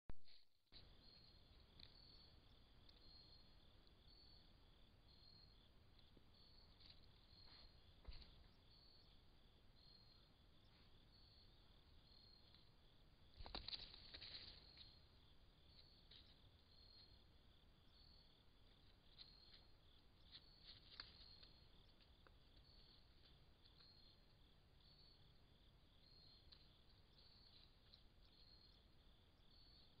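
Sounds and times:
cricket chirping: 0:00.2 - 0:30.0
crackling rustle: 0:12.4 - 0:17.2, 0:18.6 - 0:24.4.

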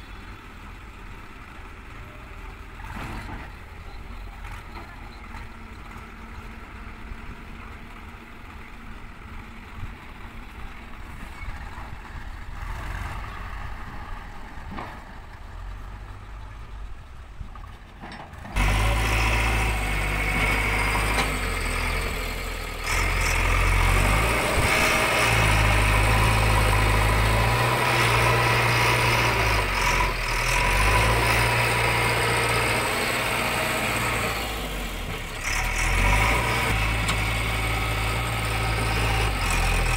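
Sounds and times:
faint tractor engine idling: 0:00.0 - 0:31.0
backhoe loader diesel engine revving: 0:00.0 - 0:39.9.

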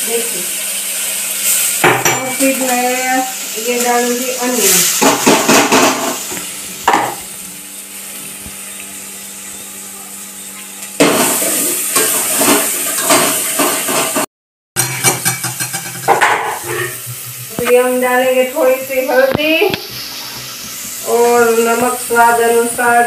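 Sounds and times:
onion sizzling in oil: 0:00.0 - 0:23.0
metal spoon scraping a pot: 0:14.8 - 0:17.0.

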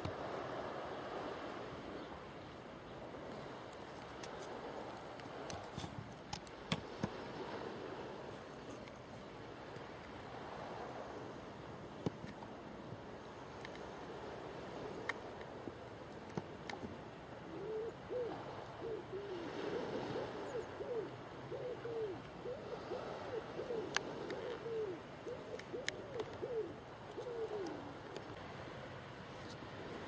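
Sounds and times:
bird hooting: 0:17.5 - 0:28.0.

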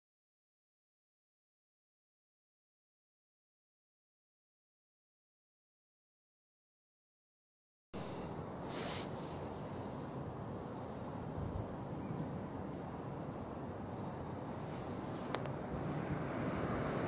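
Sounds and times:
low outdoor background noise: 0:08.0 - 0:17.0.

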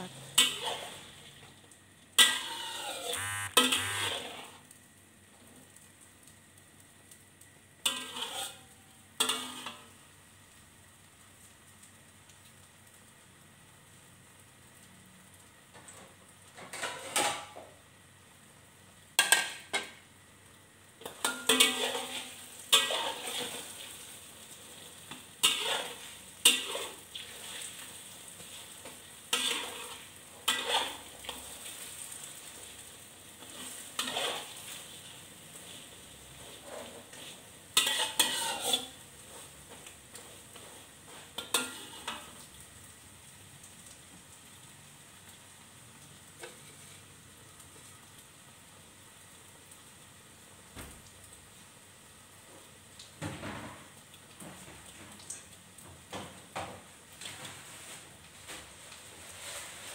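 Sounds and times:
egg sizzling in oil: 0:00.0 - 0:59.9
metal spatula scraping wok: 0:00.2 - 0:01.2, 0:02.2 - 0:04.6, 0:07.8 - 0:09.9, 0:16.7 - 0:17.5, 0:21.0 - 0:24.1, 0:25.1 - 0:32.8, 0:33.4 - 0:35.0, 0:35.6 - 0:42.4, 0:57.2 - 0:59.9.

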